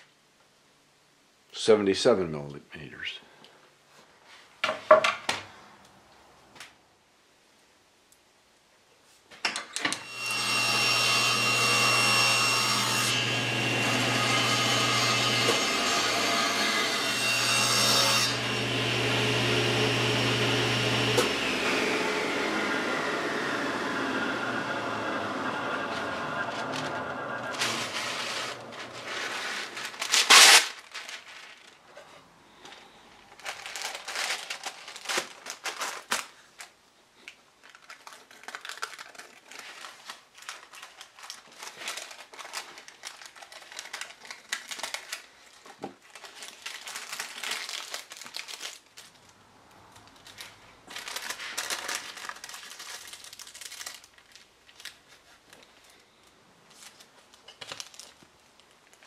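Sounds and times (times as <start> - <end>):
wax paper crinkling: 25.9 - 49.4, 50.0 - 59.0
paper tearing: 26.0 - 31.8, 33.4 - 36.3, 37.7 - 45.3, 50.4 - 55.3.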